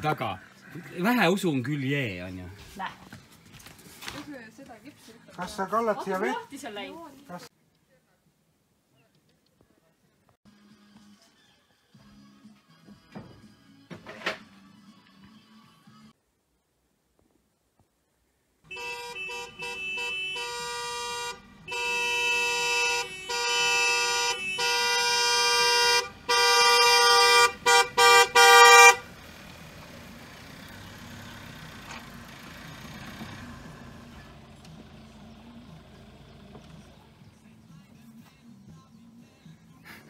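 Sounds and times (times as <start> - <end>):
car horn honking: 18.7 - 29.2.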